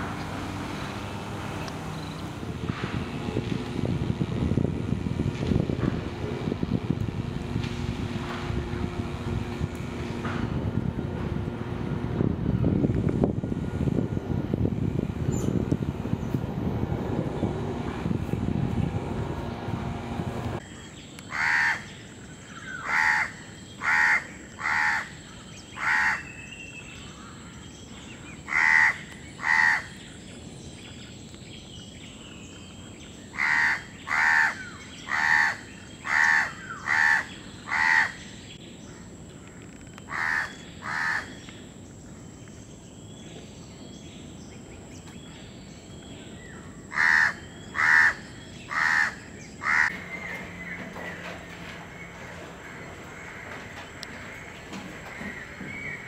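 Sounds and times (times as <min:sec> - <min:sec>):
crow cawing: 0:21.3 - 0:21.8, 0:22.8 - 0:25.1, 0:25.8 - 0:26.2, 0:28.5 - 0:29.9, 0:33.4 - 0:38.2, 0:40.1 - 0:41.3, 0:46.9 - 0:49.9.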